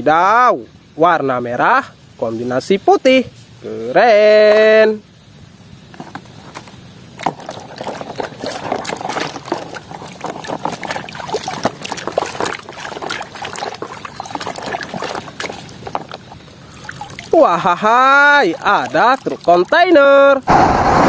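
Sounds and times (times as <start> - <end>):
muddy water splashing: 5.8 - 20.5.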